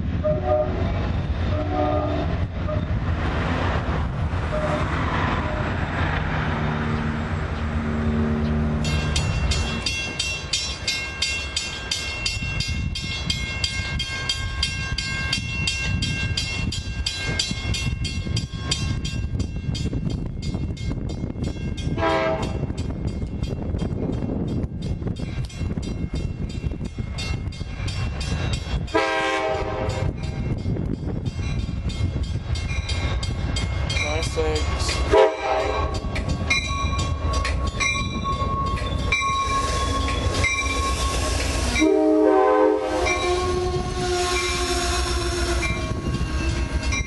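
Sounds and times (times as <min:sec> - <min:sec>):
train rumbling past: 0:00.0 - 0:47.0
train horn: 0:00.2 - 0:02.9, 0:04.5 - 0:05.7, 0:22.0 - 0:22.7, 0:28.9 - 0:30.2, 0:35.1 - 0:36.0, 0:40.8 - 0:47.0
crossing bell ringing: 0:07.8 - 0:47.0.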